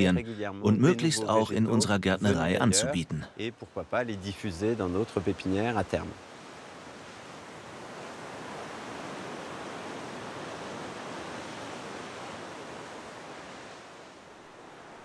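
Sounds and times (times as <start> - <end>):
waves on rocky shore: 3.5 - 15.0.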